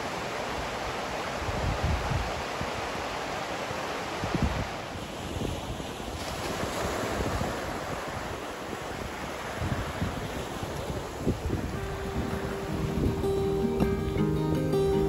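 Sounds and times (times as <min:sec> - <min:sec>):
small waves washing on beach: 0:00.0 - 0:13.8
wind gusting on microphone: 0:00.1 - 0:14.4.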